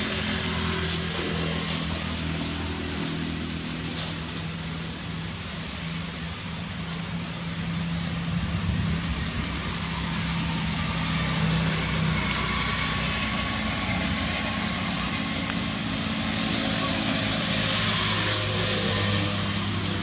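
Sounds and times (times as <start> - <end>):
constant hiss: 0.0 - 20.0.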